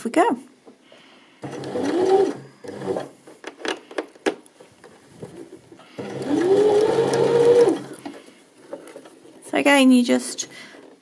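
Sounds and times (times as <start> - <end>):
sewing machine motor stitching: 1.4 - 3.2, 6.0 - 8.1.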